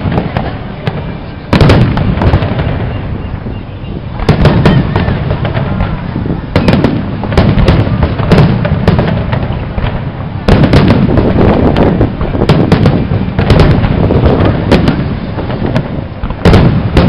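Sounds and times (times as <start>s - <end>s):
firework crackling: 0.0s - 17.0s
firework shells bursting: 4.1s - 17.0s.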